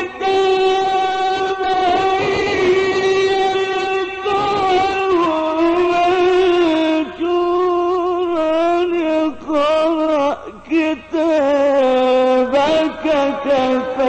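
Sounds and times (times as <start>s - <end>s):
man reciting in long ornamented notes: 0.0s - 14.0s.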